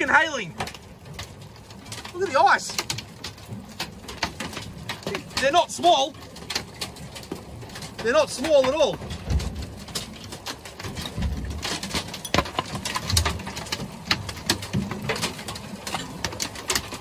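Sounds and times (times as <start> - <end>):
hailstones clattering on metal deck: 0.0 - 17.0
wind rumbling on microphone: 0.0 - 17.0.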